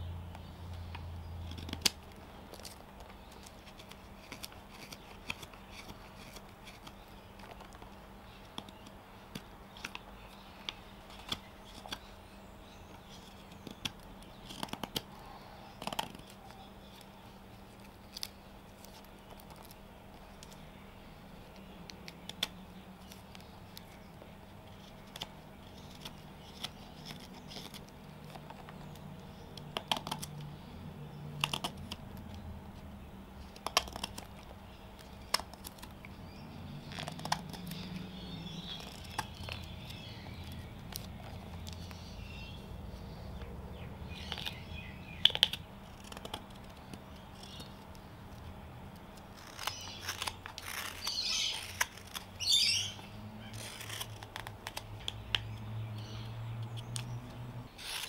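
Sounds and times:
birds chirping: 6.8 - 48.6, 49.4 - 58.0
knife carving wood: 44.2 - 48.0, 49.2 - 55.6, 56.6 - 58.0.

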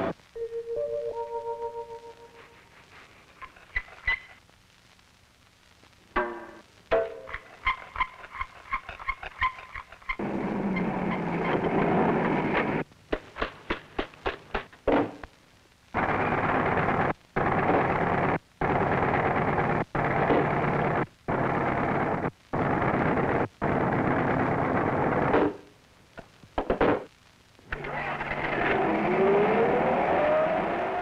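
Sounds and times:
rising whine: 27.8 - 31.0.

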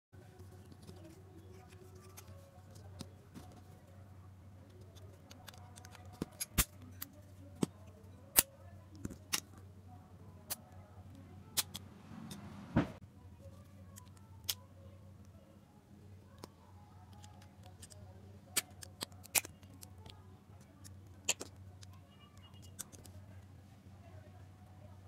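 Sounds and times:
plastic clicks and snaps: 13.9 - 14.6, 17.1 - 23.2.

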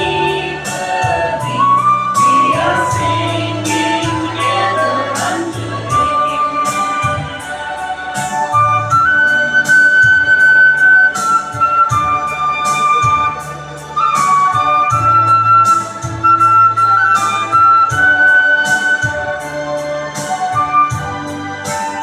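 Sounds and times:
sustained bass notes: 0.0 - 8.0
electronic keyboard flute melody: 0.0 - 22.0.

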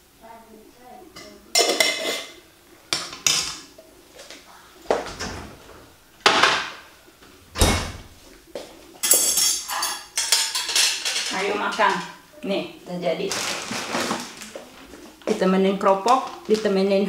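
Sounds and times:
refrigerator door opening and shutting: 5.0 - 6.8, 7.4 - 8.2.

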